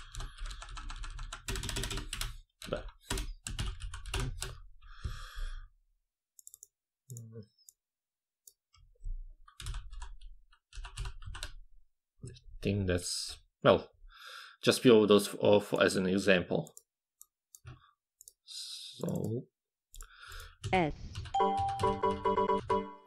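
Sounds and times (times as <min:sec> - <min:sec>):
key-sound program tones: 0:21.3 - 0:22.9.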